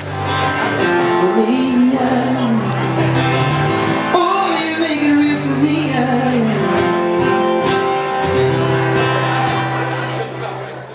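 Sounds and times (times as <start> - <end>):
acoustic guitar strumming: 0.0 - 10.8
man singing: 1.0 - 3.3, 4.0 - 7.9.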